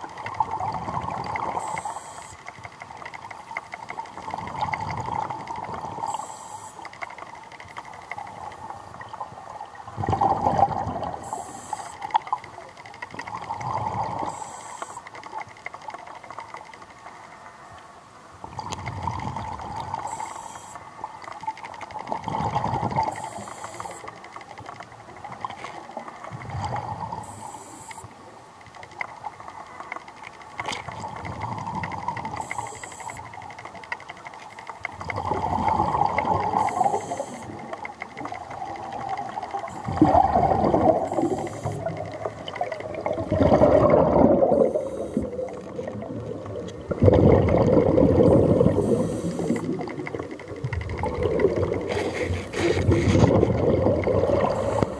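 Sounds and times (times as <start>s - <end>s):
exhaled bubbles underwater: 0.0s - 2.3s, 3.9s - 6.7s, 8.2s - 15.0s, 18.4s - 24.1s, 24.9s - 28.1s, 30.6s - 33.5s, 34.8s - 54.9s
regulator inhale hiss: 1.5s - 2.5s, 5.9s - 6.9s, 11.2s - 12.2s, 14.1s - 15.2s, 19.9s - 20.9s, 23.0s - 24.2s, 27.0s - 28.1s, 32.3s - 33.3s, 36.5s - 37.7s, 41.0s - 41.9s, 44.5s - 45.6s, 48.3s - 49.8s, 54.4s - 54.9s.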